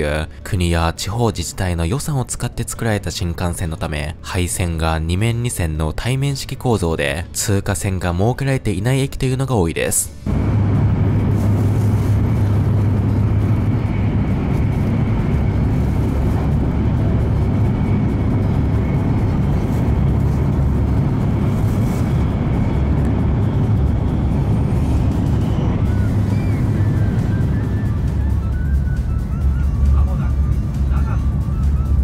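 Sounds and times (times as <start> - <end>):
train cabin rumble: 10.1 - 32.0.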